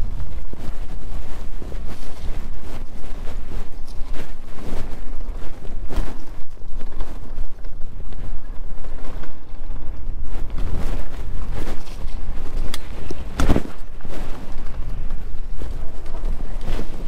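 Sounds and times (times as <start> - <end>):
bike rattles and knocks: 0.0 - 17.0
wind buffeting microphone: 0.0 - 17.0.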